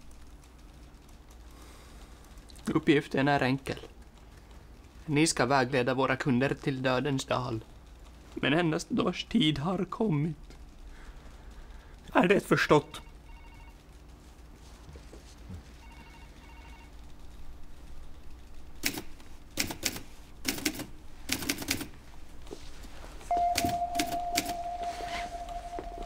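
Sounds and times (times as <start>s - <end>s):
steady high tone: 23.3s - 26.0s.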